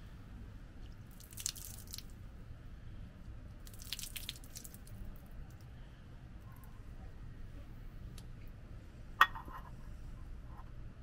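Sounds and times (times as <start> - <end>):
water pouring and splashing on stone: 0.9 - 2.1, 3.6 - 5.0.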